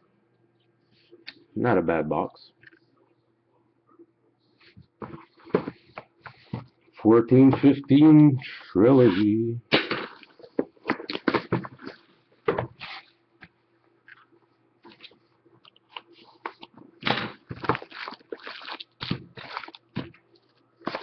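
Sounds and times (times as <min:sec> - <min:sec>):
plastic wrapping crinkling and tearing: 0:17.4 - 0:21.0.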